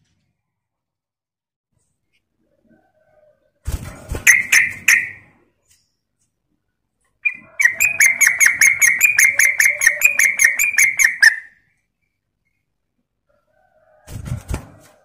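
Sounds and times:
bird chattering song: 0:04.3 - 0:05.2, 0:07.2 - 0:11.5
wing flutter: 0:14.0 - 0:15.0.

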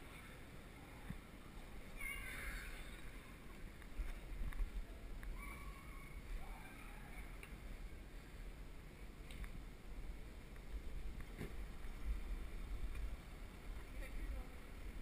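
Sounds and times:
faint high-pitched sounds: 0:00.0 - 0:04.2, 0:04.8 - 0:08.3
low rumble over cobblestones: 0:00.0 - 0:15.0.

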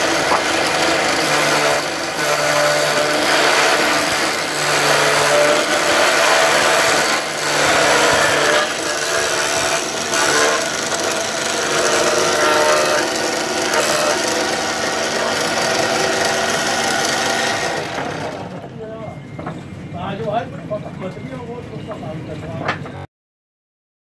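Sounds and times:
cutter cutting wood: 0:00.0 - 0:18.6
milling machine motor whine: 0:00.0 - 0:19.9.

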